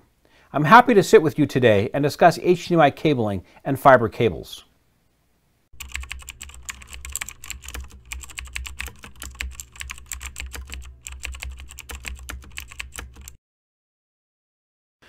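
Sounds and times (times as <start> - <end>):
fast keyboard typing: 5.8 - 13.4.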